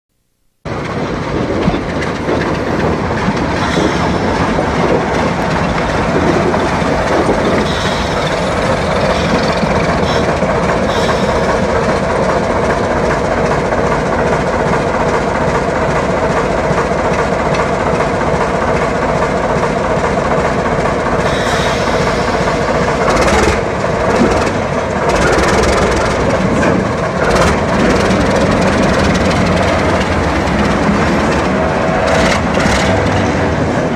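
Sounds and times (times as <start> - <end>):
diesel locomotive running: 0.6 - 33.9
wheels clattering over rails: 0.7 - 33.9.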